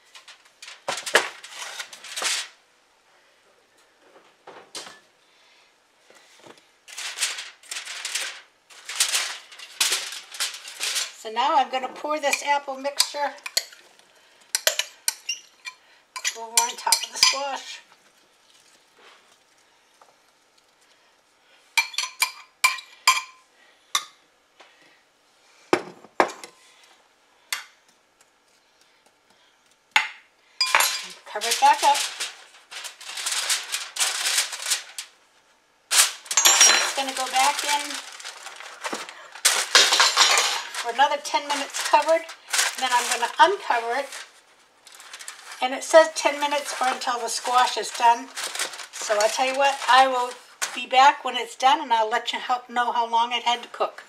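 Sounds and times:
aluminium foil crinkling: 0.0 - 2.6, 6.2 - 15.6, 16.2 - 21.0, 30.6 - 35.3, 35.9 - 51.2.

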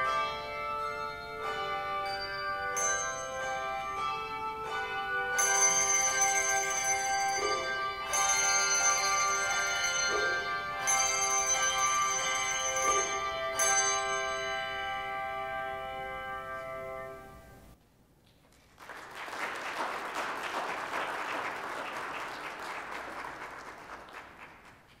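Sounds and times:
handbell chord ringing: 0.0 - 16.5
audience applauding: 18.6 - 25.0.

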